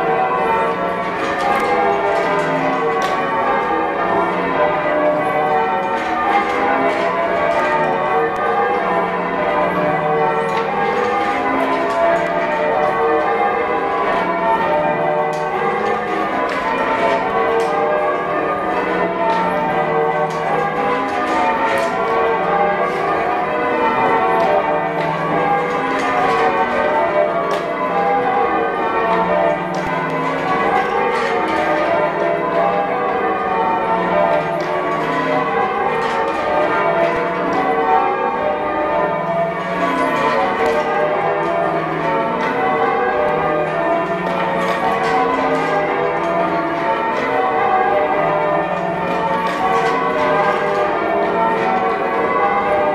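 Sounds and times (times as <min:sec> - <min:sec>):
church bells change ringing: 0:00.0 - 0:52.9.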